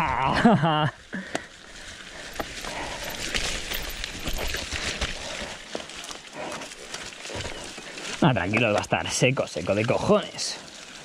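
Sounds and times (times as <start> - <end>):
tyres rushing on wet dirt: 0.0 - 11.0
bike knocking and rattling: 2.2 - 10.2.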